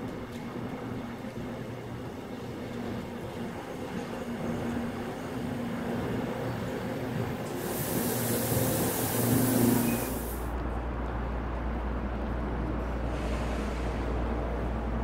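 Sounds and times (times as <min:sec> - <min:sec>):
platform ambience hum: 0:00.0 - 0:15.0
train air hiss: 0:07.4 - 0:10.5, 0:13.0 - 0:14.5.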